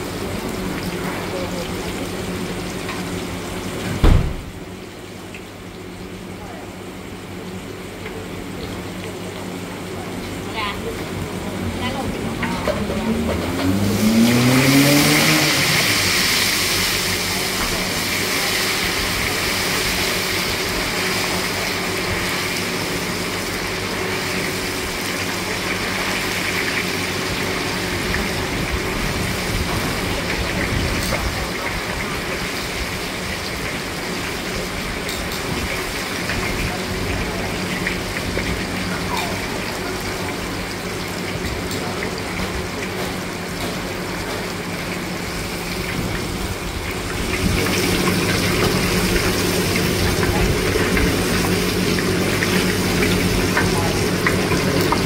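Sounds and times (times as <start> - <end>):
tofu sizzling in hot oil: 12.0 - 55.0
engine revving: 12.7 - 16.2.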